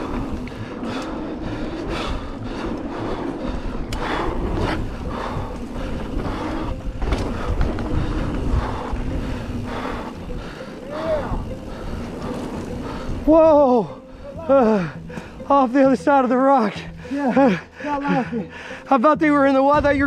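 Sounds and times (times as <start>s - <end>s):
wind buffeting microphone: 0.0s - 15.5s
tyres rolling on dirt: 0.0s - 20.0s
bike knocking and rattling: 3.8s - 13.9s.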